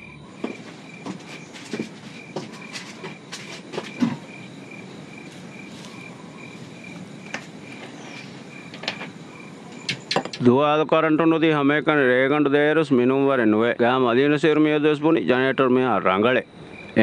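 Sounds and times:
cricket chirping: 0.0 - 17.0
clicks and knocks: 8.7 - 10.5.

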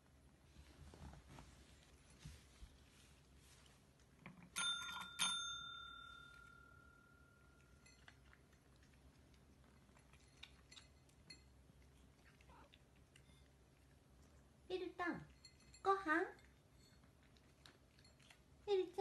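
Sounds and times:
call bell ringing: 4.6 - 7.4.

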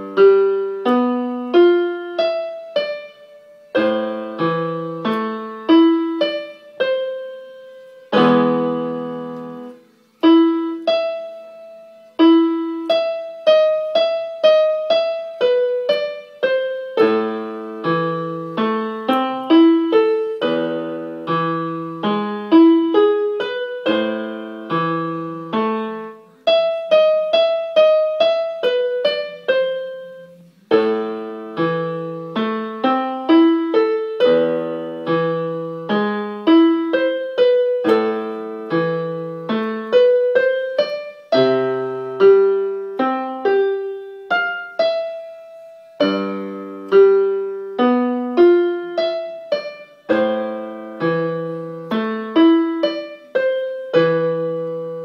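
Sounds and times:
electronic keyboard piano melody: 0.0 - 55.0.

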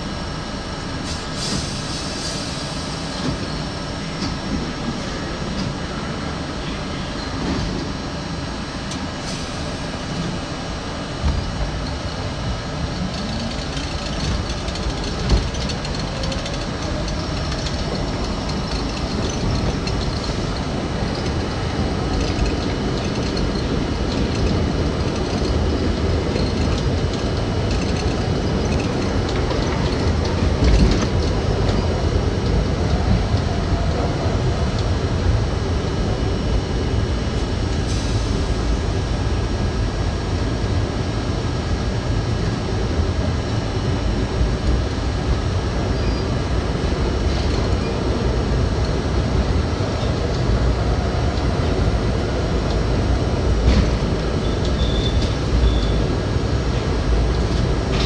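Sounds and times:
subway train whine: 0.0 - 58.0
train wheels rumbling on rail: 0.0 - 58.0
sharp clack of train wheels: 8.8 - 33.7, 51.3 - 58.0.

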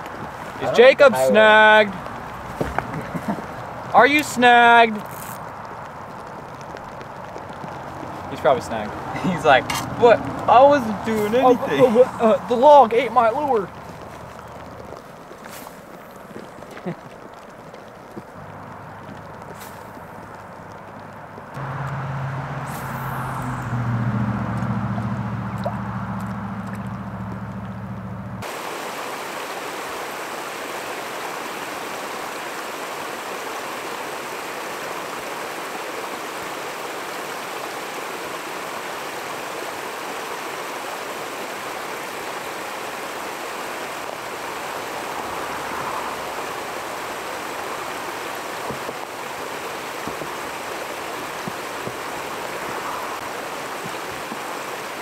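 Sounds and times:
water rushing: 0.0 - 55.0
low hum: 21.6 - 28.4.

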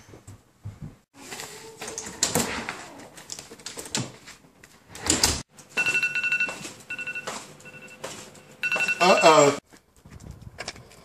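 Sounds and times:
phone alert beeps: 5.8 - 9.6.

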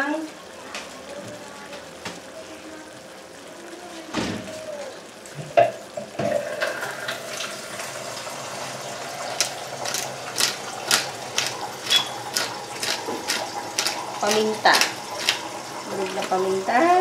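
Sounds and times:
chicken sizzling in a frying pan: 0.0 - 17.0
pepper grinder grinding clicks: 9.4 - 15.5.

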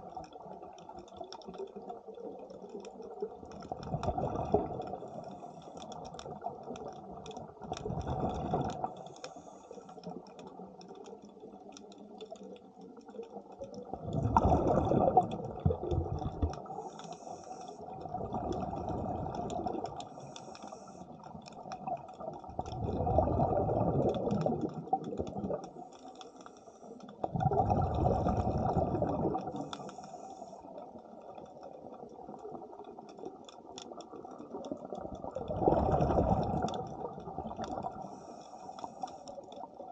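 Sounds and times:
exhaled air bubbles rushing: 3.4 - 5.3, 6.2 - 9.0, 13.7 - 16.8, 17.8 - 20.2, 21.7 - 25.8, 27.2 - 30.0, 34.1 - 38.2
diver breathing through regulator: 16.7 - 17.8.

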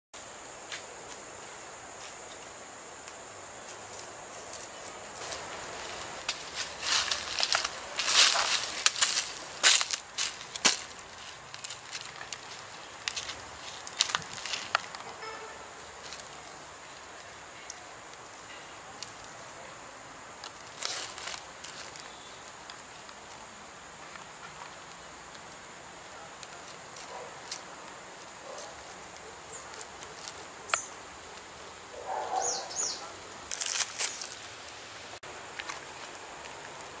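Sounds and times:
faint outdoor hiss: 0.2 - 37.0
fruit pulp rustling and tearing: 6.4 - 15.1, 28.4 - 31.6, 33.4 - 34.7.

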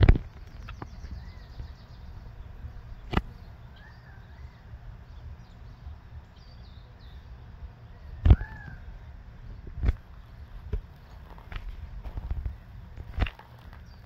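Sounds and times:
steady low rumble: 0.0 - 14.0
faint bird chirps: 0.4 - 11.6.

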